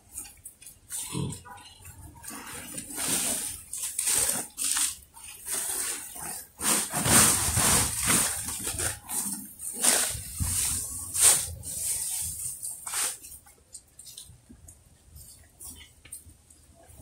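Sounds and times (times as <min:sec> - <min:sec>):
plastic sack rustling: 0:02.4 - 0:13.4
leaves tumbling onto a pile: 0:02.9 - 0:13.4.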